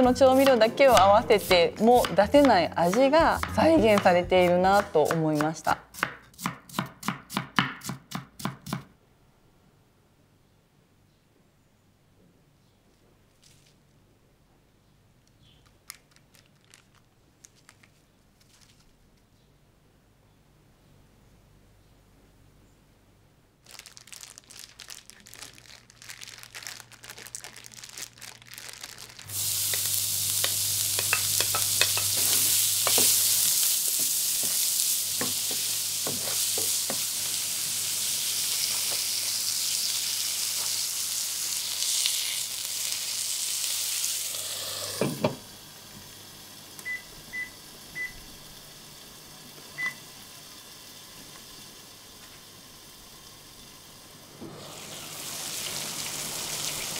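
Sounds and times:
plastic bag crinkling: 15.6 - 19.2, 23.6 - 30.0
food sizzling in a frying pan: 28.8 - 56.9
pan clatter: 30.4 - 33.3.

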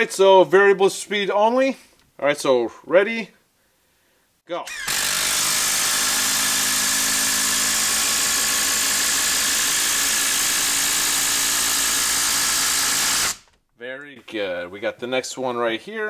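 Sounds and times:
impact driver hammering screw into log: 4.7 - 13.6.

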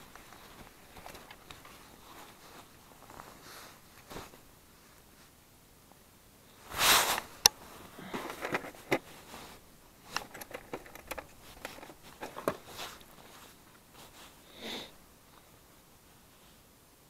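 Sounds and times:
handling clicks taps and rustles: 0.0 - 4.4, 7.1 - 13.9
short breathy rustle: 0.0 - 5.4, 6.5 - 10.3, 11.3 - 16.7.

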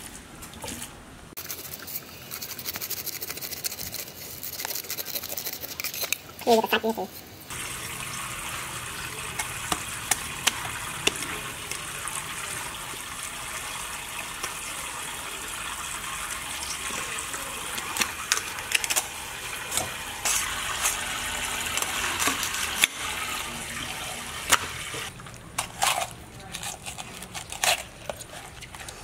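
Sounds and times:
water running: 6.3 - 26.4.

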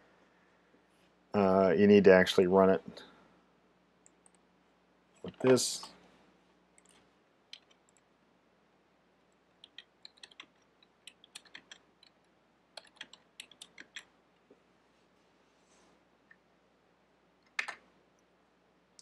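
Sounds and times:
computer keyboard typing: 6.8 - 8.0, 9.6 - 12.2, 12.8 - 14.1, 17.5 - 17.8.

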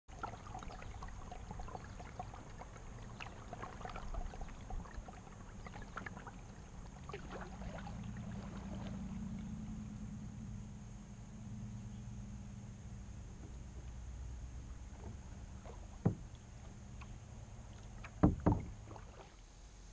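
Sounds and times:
water trickling and splashing: 0.1 - 9.9, 13.2 - 19.6
low rumble: 6.4 - 19.0.

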